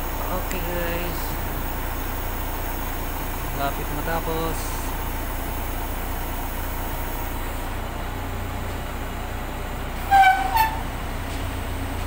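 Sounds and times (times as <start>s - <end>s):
crane diesel engine running: 0.0s - 12.0s
loud horn toots: 10.0s - 10.9s.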